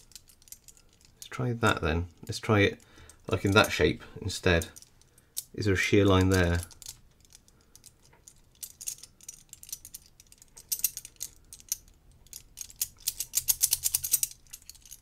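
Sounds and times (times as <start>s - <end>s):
metal puzzle pieces clicking: 0.0s - 1.4s, 6.2s - 15.0s.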